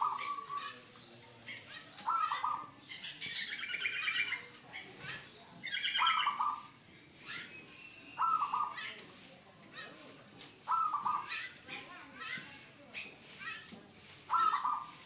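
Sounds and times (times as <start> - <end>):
dove cooing: 0.0 - 0.8, 1.5 - 6.8, 8.2 - 9.0, 10.6 - 11.6, 14.2 - 15.0
high chattering bird calls: 0.0 - 15.0.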